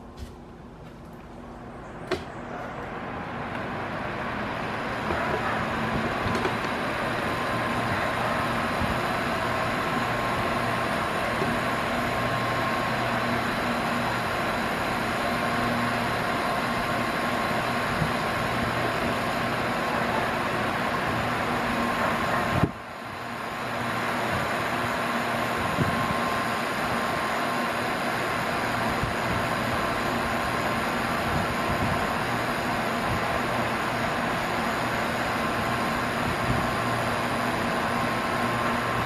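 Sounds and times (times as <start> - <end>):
electric fan running: 0.0 - 39.0
fan switch click: 2.0 - 2.4.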